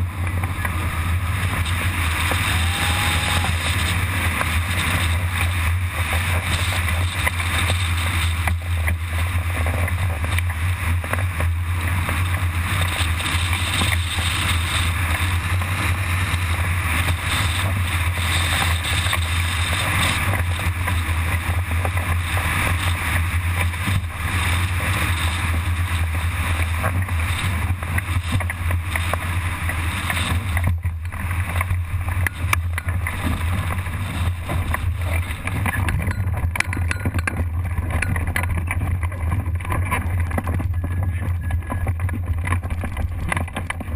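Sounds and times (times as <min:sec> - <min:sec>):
wind buffeting microphone: 0:00.0 - 0:43.9.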